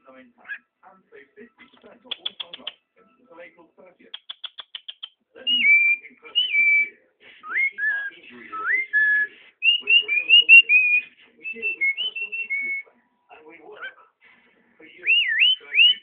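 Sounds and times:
bird whistling song: 0:04.2 - 0:12.9, 0:15.0 - 0:16.0.

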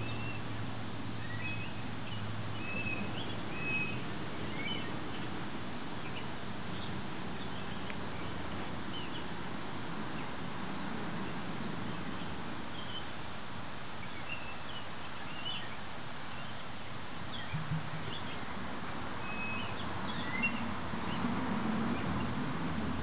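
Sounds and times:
small birds chirping: 0:00.0 - 0:22.8
soft low bumps: 0:17.5 - 0:18.4.

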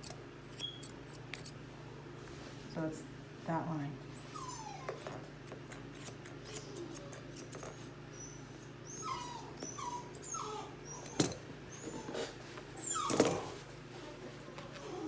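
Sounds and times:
puppy whimpering: 0:04.1 - 0:05.2, 0:06.4 - 0:15.0.

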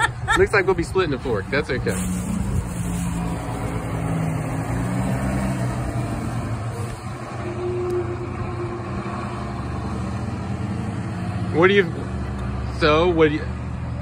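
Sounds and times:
engine idling hum: 0:05.7 - 0:13.4.

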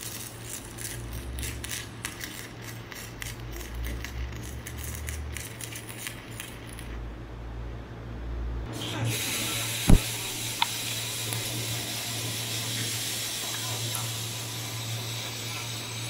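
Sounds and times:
welding arc crackling: 0:08.8 - 0:16.0.

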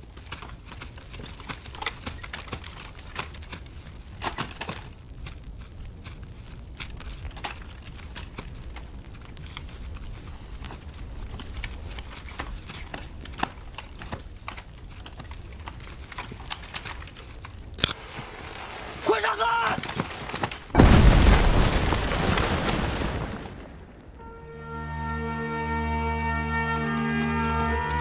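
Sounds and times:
small crackles and knocks: 0:00.0 - 0:24.3
sharp loud crack: 0:20.7 - 0:24.2.

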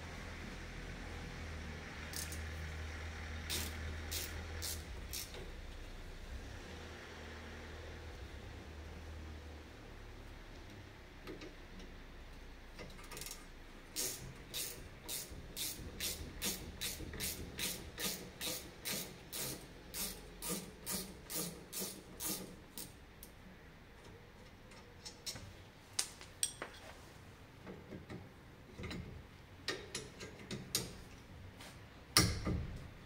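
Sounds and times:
ratchet wrench clicking: 0:02.1 - 0:02.4, 0:03.5 - 0:05.5, 0:13.0 - 0:13.4, 0:14.0 - 0:22.9.

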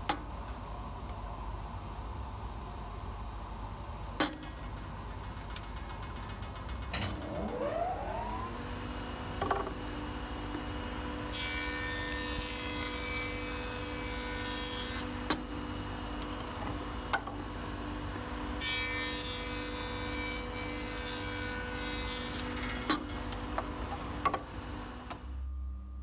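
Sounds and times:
jointer motor whining and humming: 0:07.1 - 0:10.7.

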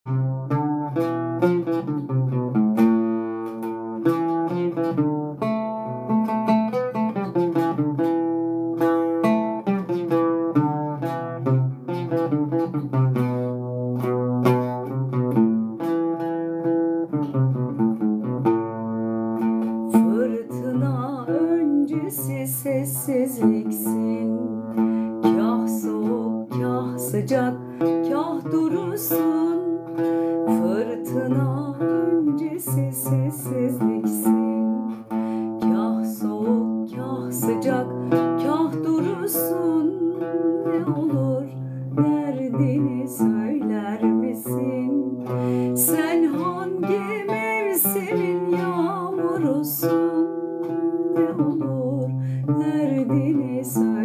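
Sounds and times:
oud plucked: 0:00.0 - 0:54.0
woman singing: 0:19.7 - 0:54.0.

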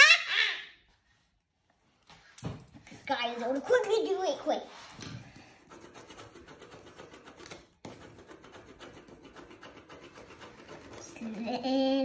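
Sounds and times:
pen scribbling on paper: 0:05.6 - 0:11.6.

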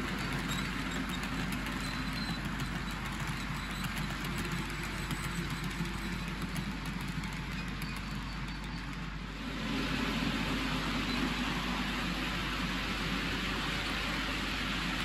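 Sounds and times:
wheel clicks over rail joints: 0:00.0 - 0:09.3
model train rumbling on track: 0:00.0 - 0:15.0.

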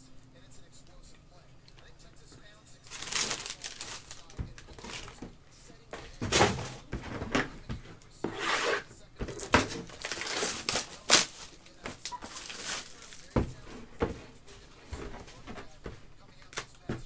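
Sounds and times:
plastic wrap crinkling and tearing: 0:02.8 - 0:05.2, 0:09.3 - 0:13.5.

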